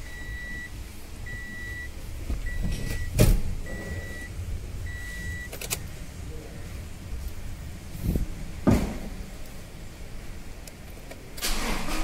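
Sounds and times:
dashboard warning chime beeping: 0.0s - 6.8s
heavy thump: 2.2s - 3.7s, 8.0s - 9.3s.

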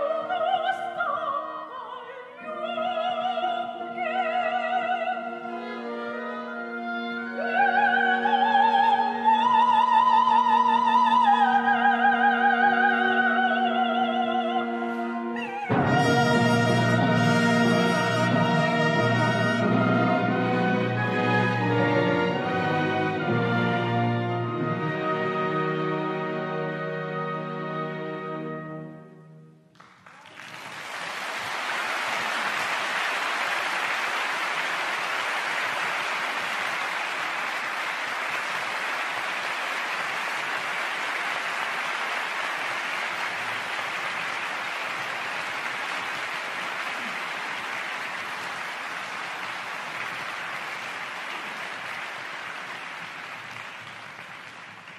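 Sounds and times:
orchestral note: 15.4s - 25.0s
audience applauding: 29.7s - 54.9s.

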